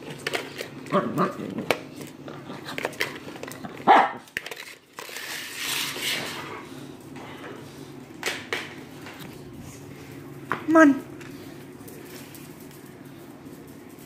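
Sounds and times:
dog barking: 0:03.8 - 0:04.3.

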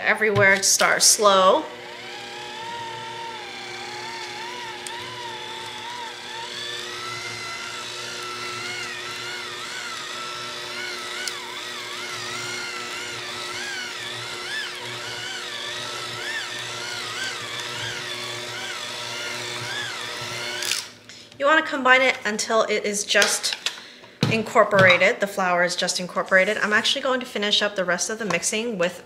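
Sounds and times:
electric hand mixer whine: 0:00.3 - 0:21.1.

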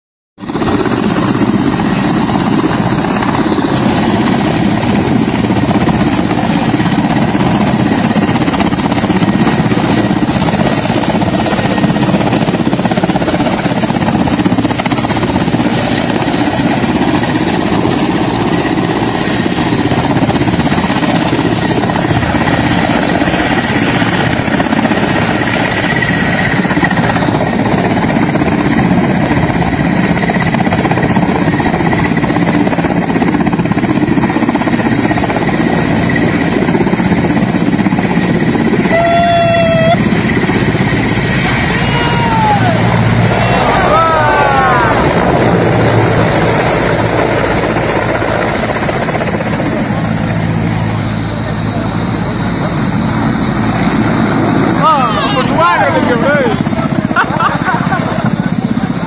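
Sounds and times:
helicopter rotor and turbines: 0:00.4 - 0:59.0
rushing floodwater: 0:38.9 - 0:49.4.

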